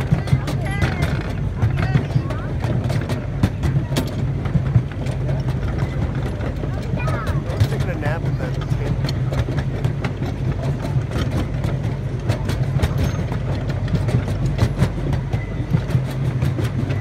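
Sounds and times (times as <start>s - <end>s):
train engine drone: 0.0s - 17.0s
wheels clattering on track: 0.0s - 17.0s.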